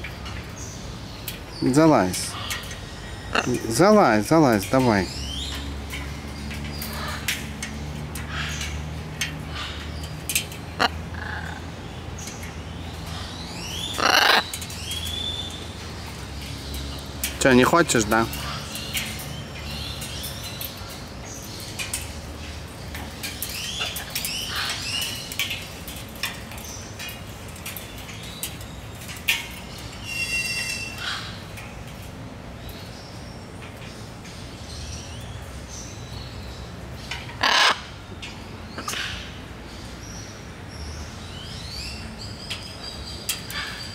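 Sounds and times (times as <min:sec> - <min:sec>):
birds chirping: 0:00.0 - 0:43.9
parrot harsh squawk: 0:14.0 - 0:14.5, 0:37.4 - 0:37.8.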